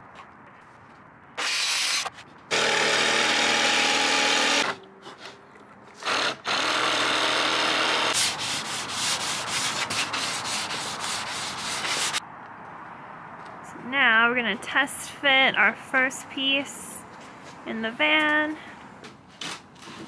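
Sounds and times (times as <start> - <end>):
jigsaw cutting plywood: 1.4 - 4.8, 6.0 - 8.3
power saw running: 1.4 - 4.8, 6.0 - 8.2
sanding sponge rubbing wood edge: 8.2 - 12.2.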